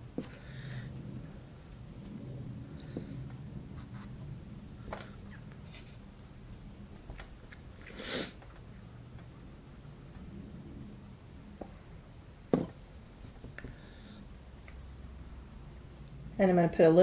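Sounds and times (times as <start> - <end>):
steady low hum: 0.0 - 17.0
short breathy hiss: 7.8 - 8.4.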